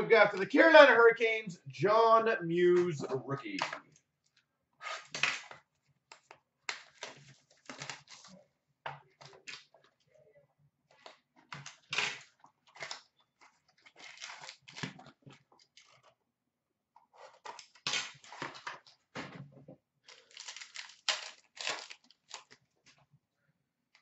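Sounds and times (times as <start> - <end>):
card wrappers rustling and crinkling: 6.2 - 8.4, 11.7 - 16.1, 20.0 - 23.0.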